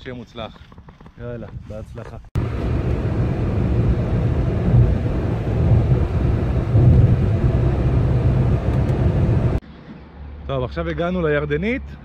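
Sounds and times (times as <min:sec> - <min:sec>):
car engine and road noise: 0:02.4 - 0:10.4.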